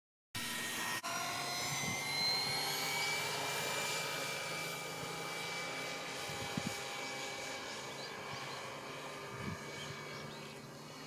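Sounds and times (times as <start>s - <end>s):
model helicopter rotor whine: 0.4s - 11.0s.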